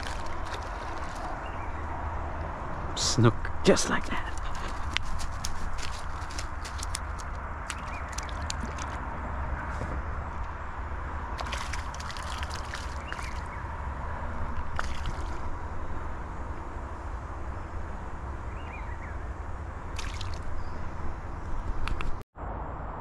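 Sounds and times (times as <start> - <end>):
water sloshing: 0.0 - 1.9, 4.0 - 9.0, 11.3 - 13.6, 14.5 - 15.6, 20.0 - 20.6
sharp clicks and crackles: 4.0 - 9.0.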